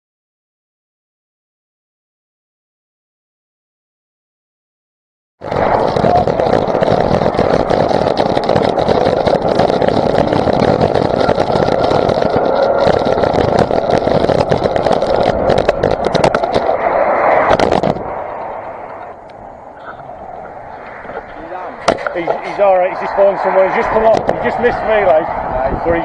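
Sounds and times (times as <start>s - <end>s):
motorcycle engine at speed: 5.4s - 26.0s
wind buffeting on microphone: 5.4s - 26.0s
wind rush: 5.4s - 26.0s.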